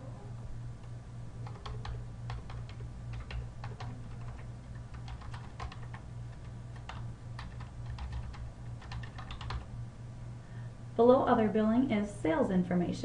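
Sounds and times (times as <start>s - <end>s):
steady low hum: 0.0s - 13.0s
keyboard typing: 1.4s - 9.7s.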